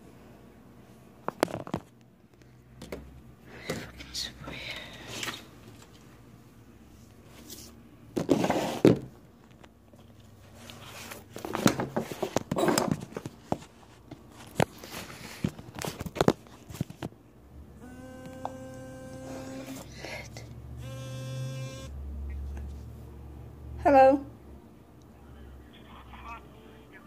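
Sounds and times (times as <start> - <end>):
phone handling rustles and clicks: 11.1 - 17.2
steady buzzing tone: 17.8 - 19.9, 20.8 - 22.0.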